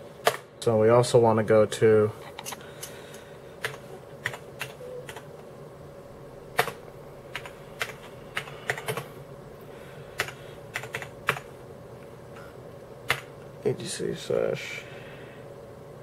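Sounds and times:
faint steady hum: 0:00.0 - 0:16.0
keyboard typing: 0:03.6 - 0:05.3, 0:06.6 - 0:09.1, 0:10.2 - 0:11.5, 0:13.1 - 0:13.3.

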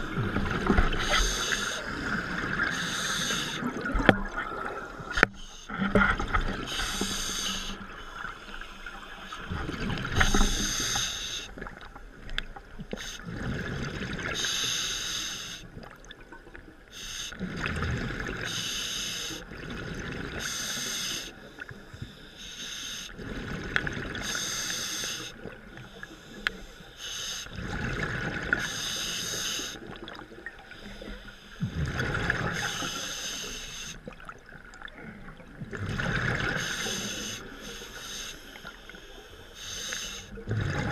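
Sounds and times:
diver breathing through regulator: 0:00.9 - 0:03.7, 0:06.6 - 0:08.3, 0:10.2 - 0:11.6, 0:24.2 - 0:27.6, 0:28.6 - 0:29.8, 0:30.7 - 0:34.1, 0:36.5 - 0:40.4
regulator hiss: 0:36.6 - 0:40.3.

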